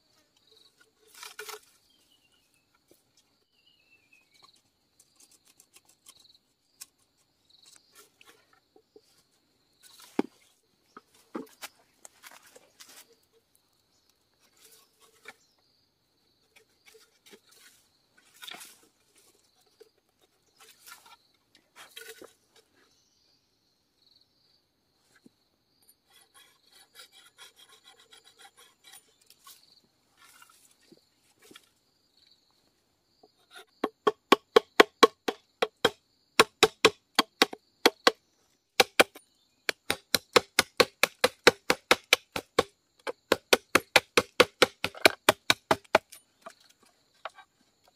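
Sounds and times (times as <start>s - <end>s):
machete scraping bamboo: 0.8s - 2.0s, 5.0s - 7.2s, 14.4s - 15.5s, 16.6s - 19.3s, 20.6s - 22.7s, 26.0s - 30.8s, 38.8s - 47.4s
machete chopping bamboo: 33.8s - 38.2s, 38.8s - 46.2s.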